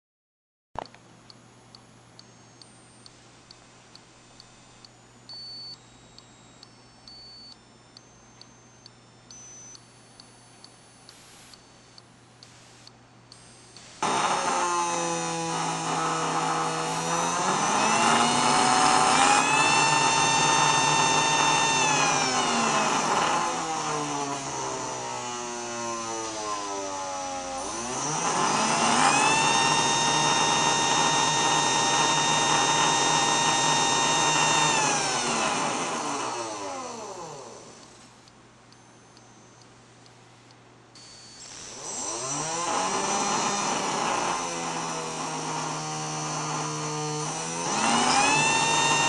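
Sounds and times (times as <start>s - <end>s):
electric motor whining: 13.4s - 38.0s, 41.0s - 49.0s.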